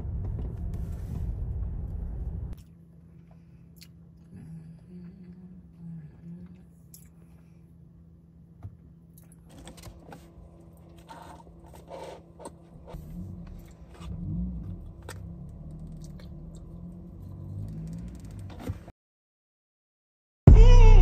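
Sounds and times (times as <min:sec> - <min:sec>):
low rumbling handling noise: 0:00.0 - 0:02.6
steady low hum: 0:00.0 - 0:15.6.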